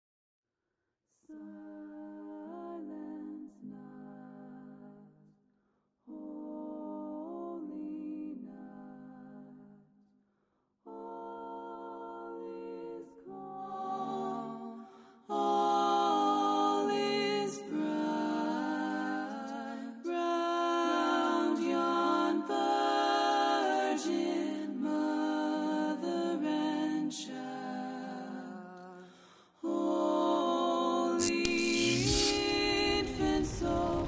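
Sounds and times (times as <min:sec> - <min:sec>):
slow soft voice-like chords: 0:31.2 - 0:33.8.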